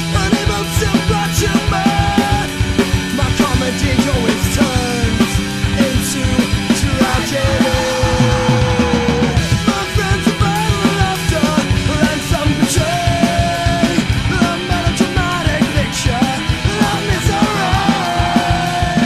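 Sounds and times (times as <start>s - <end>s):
fast drum beat: 0.0s - 19.0s
punk rock music: 0.0s - 19.0s.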